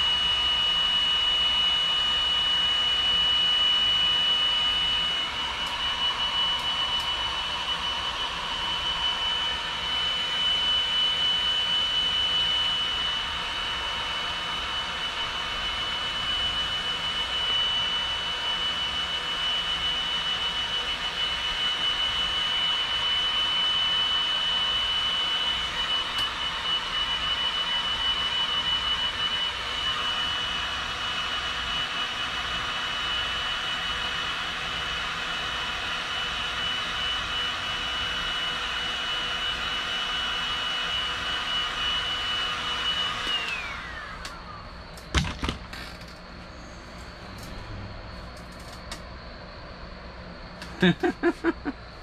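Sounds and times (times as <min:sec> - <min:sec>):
heat gun fan whine: 0:00.0 - 0:52.0
knocks of tool set down: 0:45.1 - 0:46.1.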